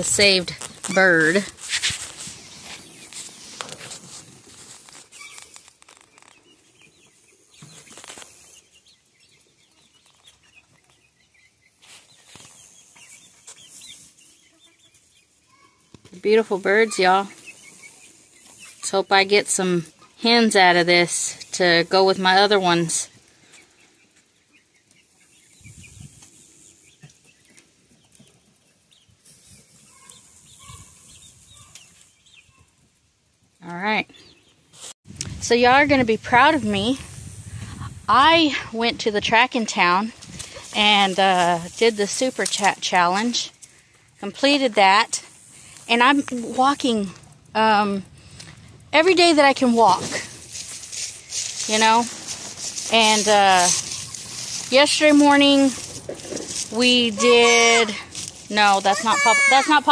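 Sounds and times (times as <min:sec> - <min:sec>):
chicks chirping and clucking: 0:00.0 - 0:59.9
brief rustles: 0:00.5 - 0:06.4.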